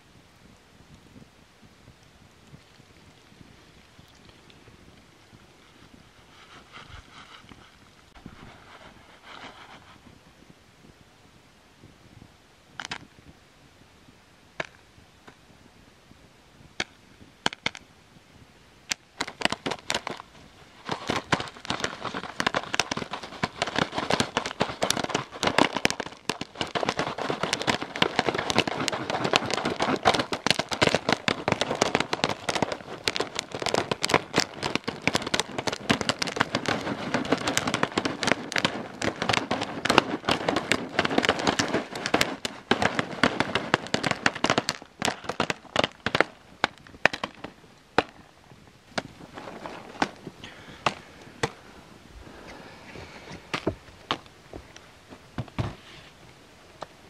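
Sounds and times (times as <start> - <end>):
popcorn popping: 18.9 - 48.2.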